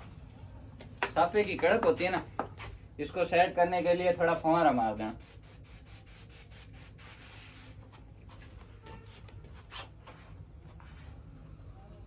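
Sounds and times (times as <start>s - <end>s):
spray bottle hissing sprays: 5.2s - 7.8s.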